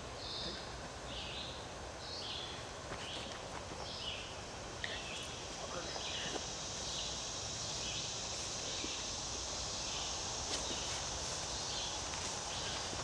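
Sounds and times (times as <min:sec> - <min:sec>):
insects droning: 0:00.0 - 0:13.0
footsteps on grass: 0:10.2 - 0:13.0.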